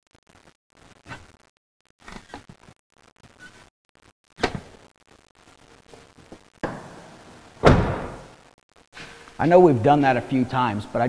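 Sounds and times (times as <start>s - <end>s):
heavy thump: 6.6s - 8.3s.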